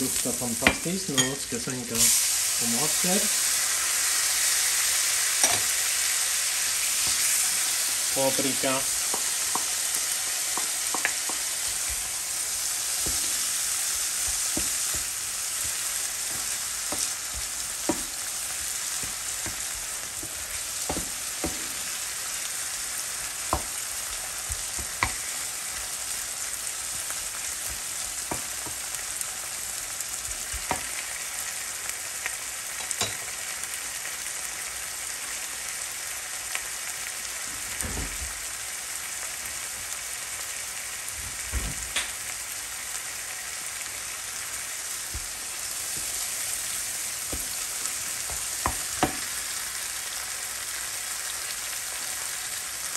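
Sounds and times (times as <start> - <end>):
vegetables sizzling in a frying pan: 0.0 - 52.9
wooden spoon stirring against pan: 6.8 - 26.1, 44.6 - 49.9.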